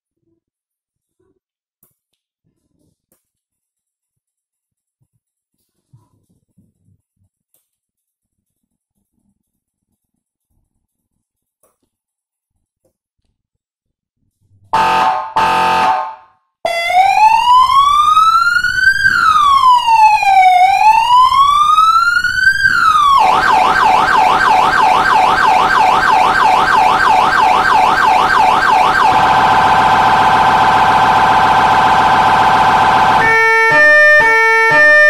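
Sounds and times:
horn blasts: 0:14.8 - 0:16.2, 0:28.8 - 0:35.0
police siren: 0:14.8 - 0:35.0.

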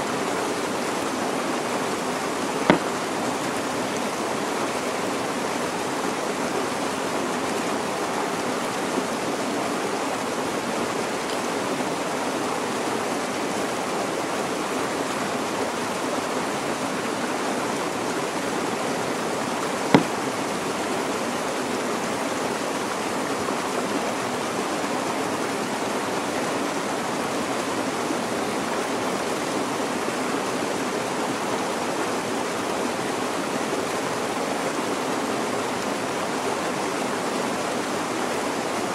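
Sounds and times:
stream rushing: 0:00.0 - 0:38.9.

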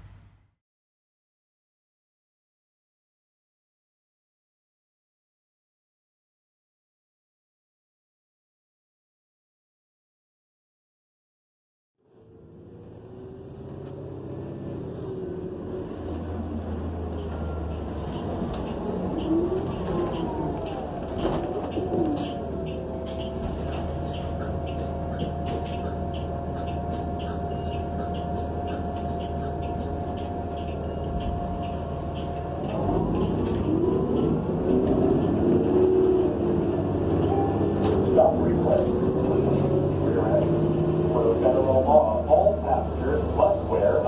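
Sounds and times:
bus engine drone: 0:00.0 - 0:00.6, 0:12.0 - 0:44.0.

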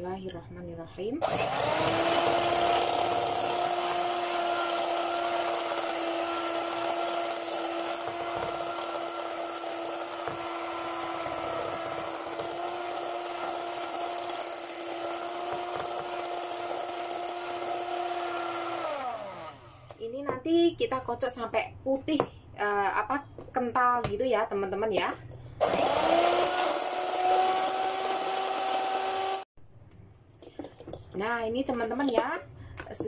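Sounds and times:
electric mixer running: 0:01.2 - 0:19.9, 0:25.6 - 0:29.5.

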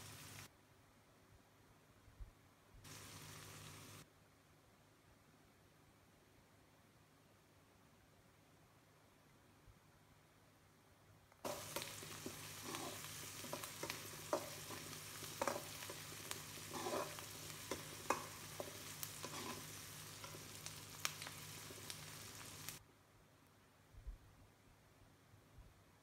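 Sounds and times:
onions sizzling in hot oil: 0:00.0 - 0:00.5, 0:02.8 - 0:04.0, 0:11.4 - 0:22.8
spatula scraping pan: 0:11.5 - 0:22.0.

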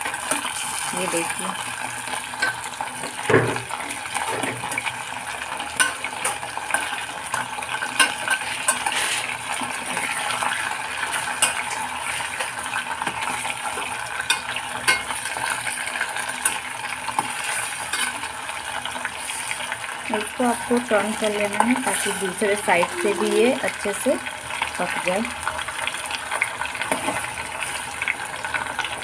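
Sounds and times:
chicken sizzling in oil: 0:00.0 - 0:29.0
metal spoon clinking on pot: 0:14.3 - 0:15.1.

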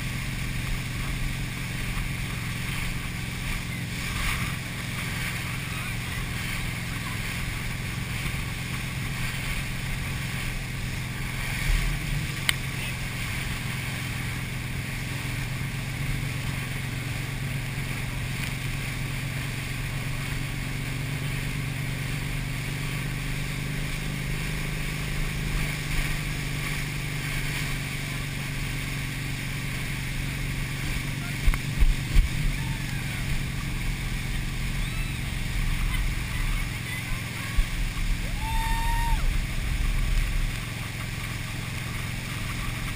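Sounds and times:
motorboat engine running: 0:00.0 - 0:42.9
water rushing from wake: 0:00.0 - 0:42.9.

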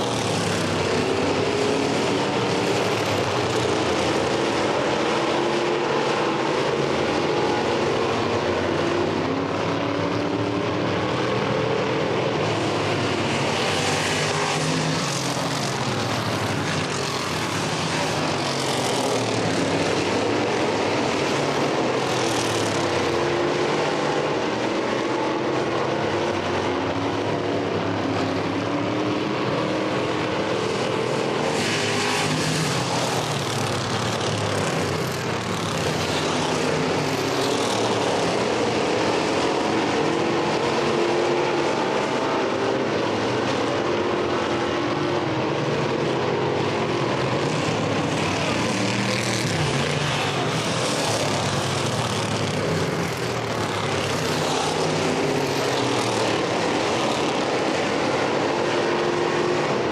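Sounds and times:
race car engines: 0:00.0 - 0:59.9.

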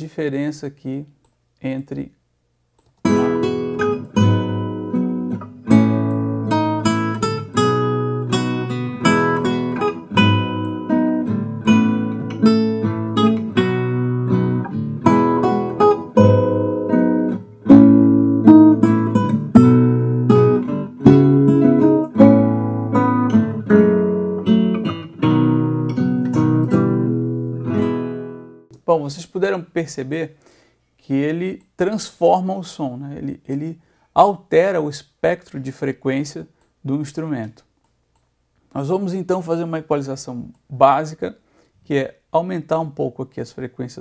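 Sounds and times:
acoustic guitar plucking: 0:03.0 - 0:28.7.

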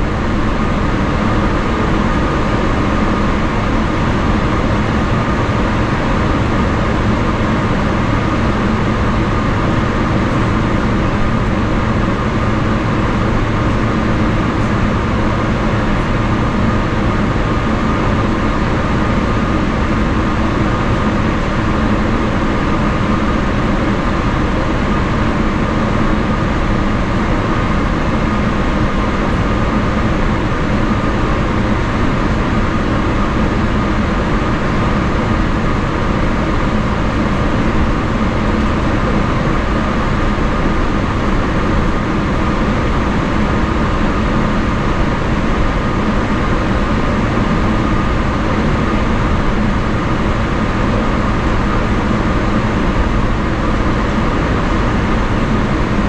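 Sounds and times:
jet engine whine and hum: 0:00.0 - 0:56.0
low cabin rumble: 0:00.0 - 0:56.0.

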